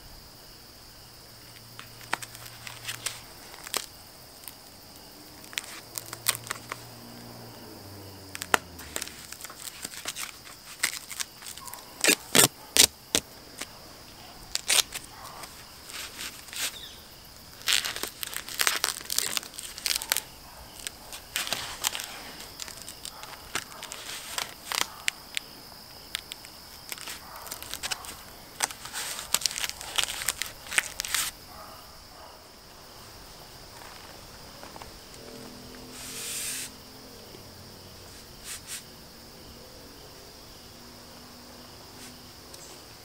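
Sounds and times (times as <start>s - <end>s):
insects droning: 0.0s - 43.0s
duct tape crackling and ripping: 1.8s - 4.6s, 5.2s - 7.1s, 8.3s - 13.8s, 14.4s - 25.5s, 26.1s - 31.4s
short rustle: 14.5s - 17.0s, 35.9s - 36.7s, 38.1s - 38.9s.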